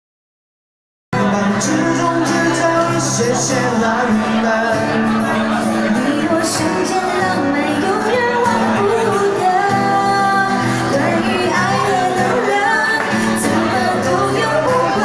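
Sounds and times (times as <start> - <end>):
acoustic guitar: 1.2 - 15.0
woman singing: 5.9 - 15.0.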